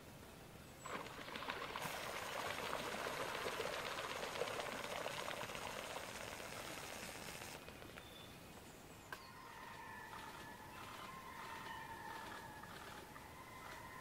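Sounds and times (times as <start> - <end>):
bird splashing across water: 0.8 - 8.1.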